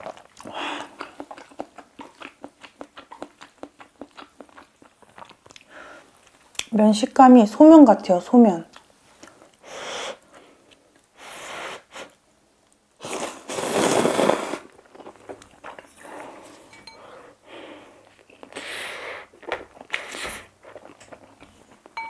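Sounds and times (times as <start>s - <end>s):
quiet chewing: 0.0s - 6.7s, 8.7s - 11.2s, 14.7s - 17.2s, 17.8s - 22.0s
slurping noodles: 13.0s - 16.4s.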